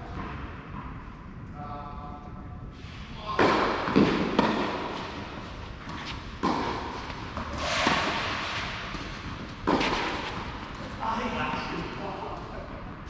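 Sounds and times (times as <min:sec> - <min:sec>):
tennis racket hitting ball: 0:03.4 - 0:11.0.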